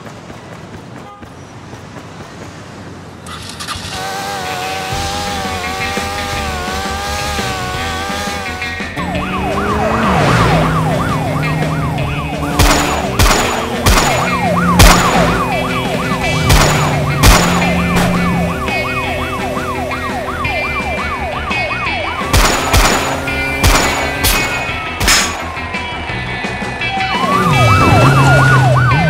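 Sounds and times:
background music: 3.6 - 29.0
police siren yelping: 5.5 - 29.0
pistol shots: 12.5 - 15.4, 16.4 - 18.3, 22.2 - 25.5.

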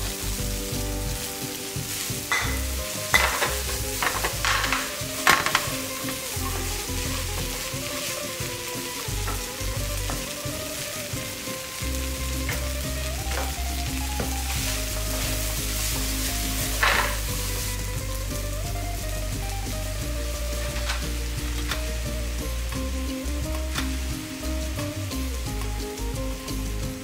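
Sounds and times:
food sizzling in a frying pan: 0.0 - 27.0
spatula scraping a pan: 1.2 - 13.6, 14.4 - 18.1.

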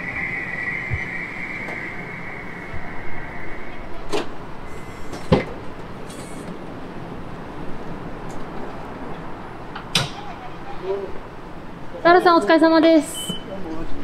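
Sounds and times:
steady high tone: 0.0 - 5.9.

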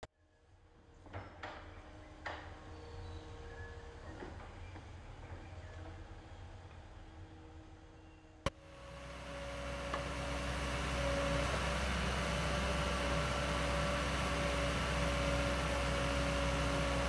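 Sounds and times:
backhoe diesel engine rumbling: 8.5 - 17.0.

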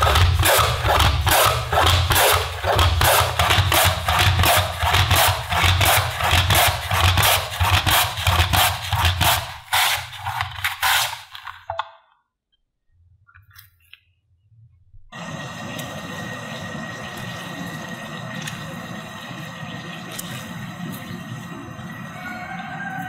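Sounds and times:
kitchen tool scraping potatoes: 0.0 - 11.6.

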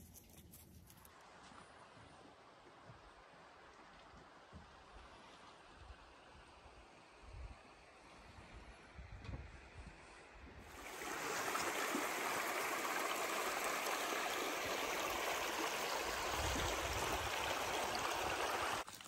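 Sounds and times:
stream water rushing: 10.7 - 18.9.

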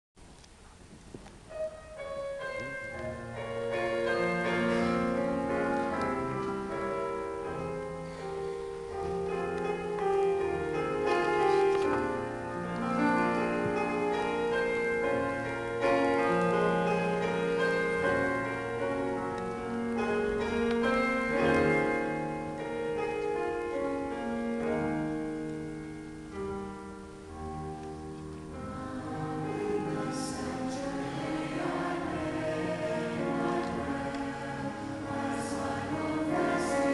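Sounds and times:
piano accompaniment: 1.1 - 36.9
choir singing held chords: 28.5 - 36.9.

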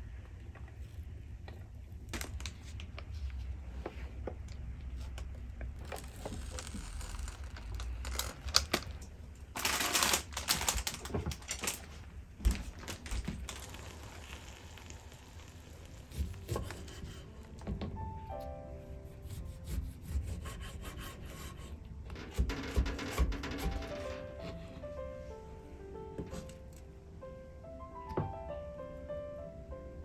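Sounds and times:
sharp knocks: 22.2 - 24.2.

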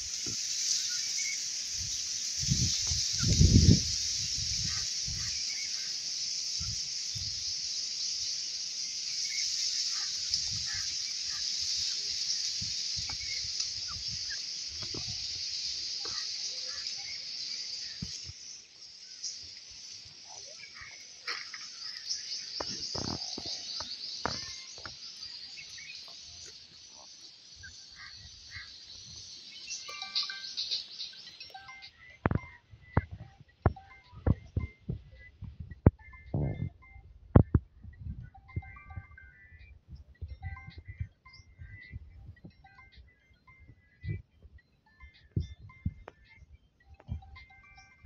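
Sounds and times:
high-pitched insect buzzing: 0.0 - 31.9.

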